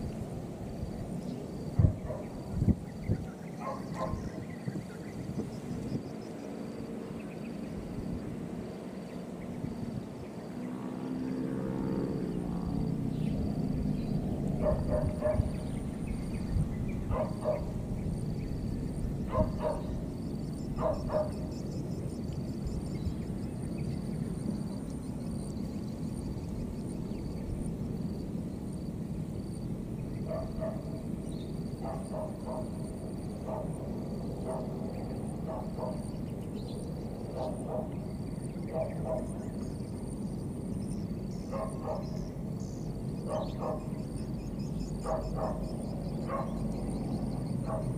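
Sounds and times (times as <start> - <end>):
steady low rumble: 12.2 - 43.3.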